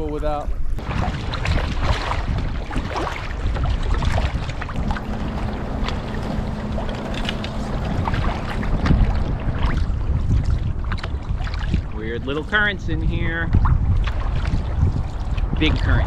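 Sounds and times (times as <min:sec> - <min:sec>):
wind buffeting microphone: 0:00.0 - 0:16.0
paddle splashing: 0:00.8 - 0:12.7, 0:13.5 - 0:16.0
water slapping hull: 0:00.8 - 0:16.0.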